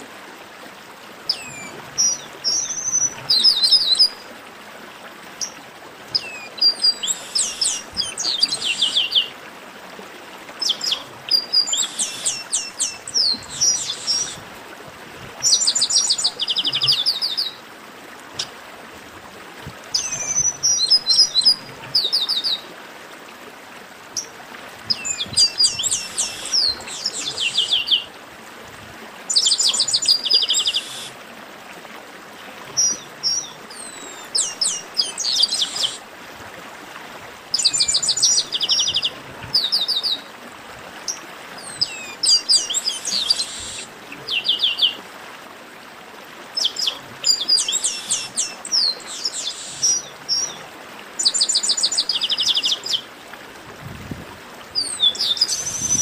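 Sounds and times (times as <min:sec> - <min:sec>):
faint hiss: 0:05.4 - 0:09.6, 0:10.2 - 0:16.6, 0:24.2 - 0:31.8, 0:32.8 - 0:36.2, 0:41.6 - 0:44.4, 0:46.7 - 0:50.6.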